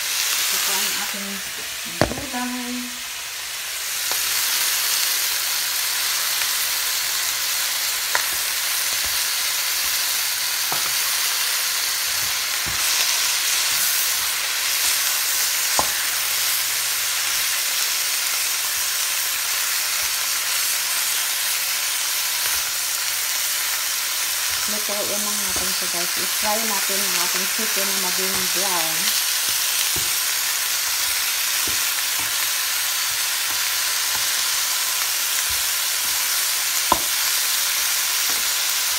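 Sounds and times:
food sizzling in oil: 0:00.0 - 0:38.9
wooden spatula knocking on pan: 0:02.0 - 0:02.4.

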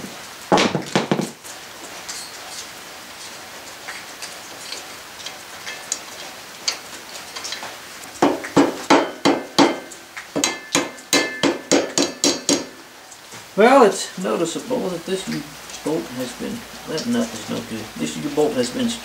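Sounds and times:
hammer striking steel: 0:08.2 - 0:12.8.

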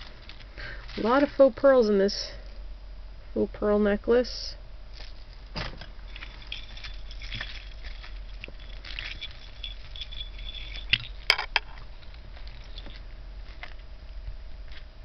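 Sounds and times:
plastic beads clicking and rattling: 0:06.1 - 0:11.8.

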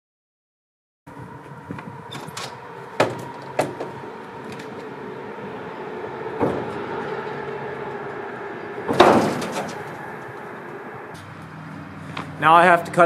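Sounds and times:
steady mechanical hum: 0:01.1 - 0:13.0
sharp knocks: 0:01.8 - 0:04.9, 0:06.3 - 0:07.4, 0:08.8 - 0:10.0
scraping clatter: 0:06.4 - 0:11.2.

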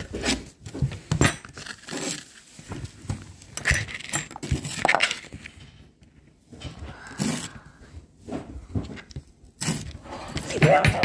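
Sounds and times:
knife scraping a plastic board: 0:09.6 - 0:10.6.

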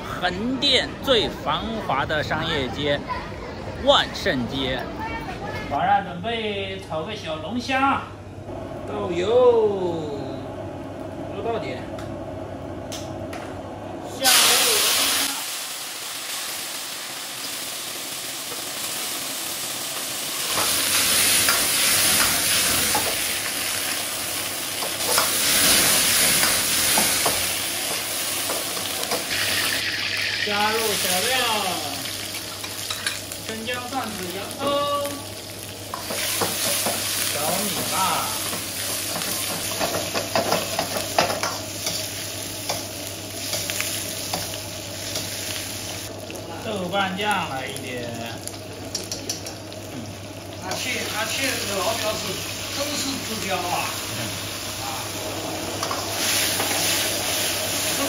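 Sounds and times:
food sizzling in hot oil: 0:14.1 - 0:58.0.

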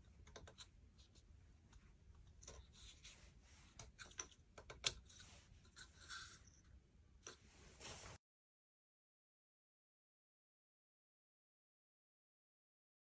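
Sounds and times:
wooden strips clicking and tapping: 0:03.8 - 0:05.1.

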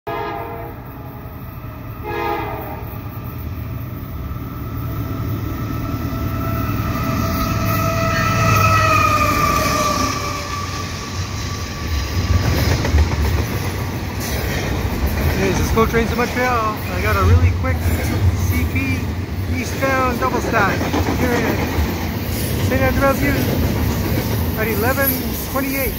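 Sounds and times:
locomotive horn blasts: 0:00.1 - 0:01.0, 0:02.0 - 0:03.0
train wheels clattering: 0:11.8 - 0:18.7, 0:19.6 - 0:25.9.

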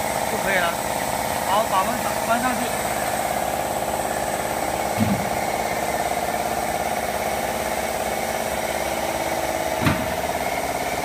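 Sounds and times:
steady pulsing machine drone: 0:00.0 - 0:11.0
short low thump: 0:05.0 - 0:05.3, 0:09.8 - 0:10.2.

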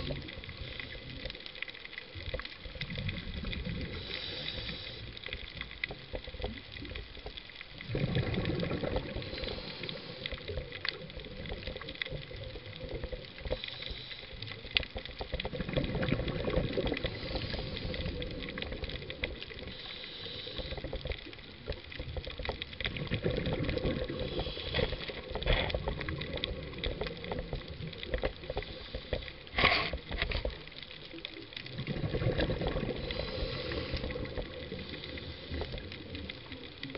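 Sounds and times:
gurgling exhaled bubbles: 0:00.0 - 0:01.4, 0:02.0 - 0:36.9
fine underwater crackle: 0:00.0 - 0:36.9
regulator hissing inhale: 0:00.4 - 0:01.3, 0:03.8 - 0:05.5, 0:09.1 - 0:10.7, 0:13.4 - 0:14.6, 0:17.0 - 0:18.5, 0:19.6 - 0:21.1, 0:24.1 - 0:25.6, 0:28.4 - 0:30.2, 0:32.9 - 0:36.0.

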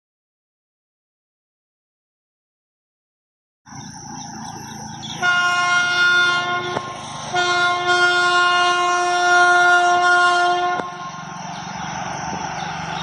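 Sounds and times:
train rumbling: 0:03.7 - 0:13.0
locomotive horn blasts: 0:05.1 - 0:11.4.

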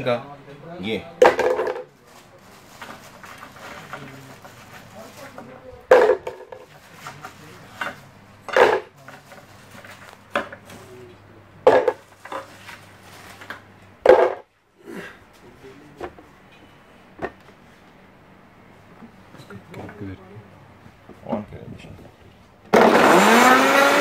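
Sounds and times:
ice cubes clattering into plastic jug: 0:01.2 - 0:01.9.

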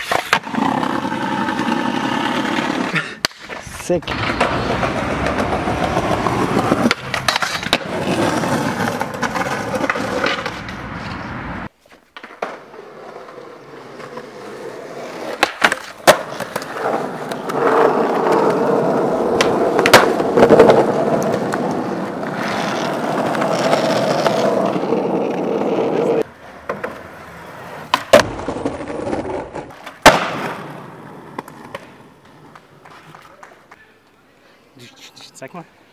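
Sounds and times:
skateboard pops and landing knocks: 0:00.0 - 0:00.9, 0:02.6 - 0:11.2, 0:12.1 - 0:12.8, 0:15.2 - 0:18.5, 0:19.3 - 0:24.7, 0:27.8 - 0:33.7
skateboard wheels rolling on pavement: 0:00.0 - 0:33.8.

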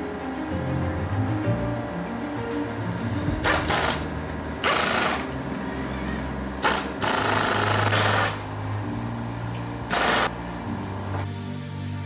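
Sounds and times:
pneumatic impact wrench rattling: 0:03.4 - 0:05.3, 0:06.6 - 0:08.4, 0:09.9 - 0:10.3.

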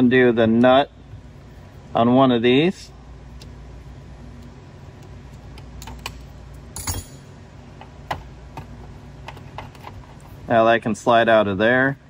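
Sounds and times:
small metallic clinks and knocks: 0:06.8 - 0:07.3.

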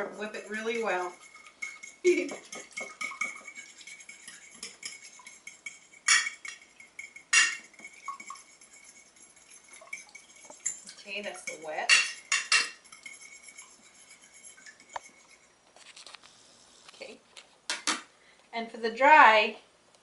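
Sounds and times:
fork clinking against dish: 0:01.2 - 0:09.0, 0:09.8 - 0:15.4
fork knocking dish: 0:07.3 - 0:07.7.

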